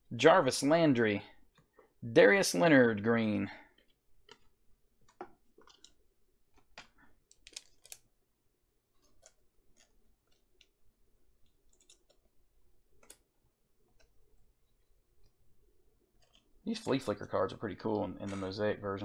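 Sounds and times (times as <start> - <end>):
cards clicking and scraping: 3.7 - 8.2, 8.8 - 17.3, 18.2 - 18.7.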